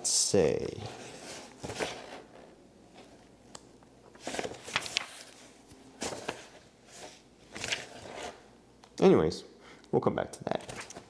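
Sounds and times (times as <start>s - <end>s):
paper pages rustling: 4.2s - 8.4s.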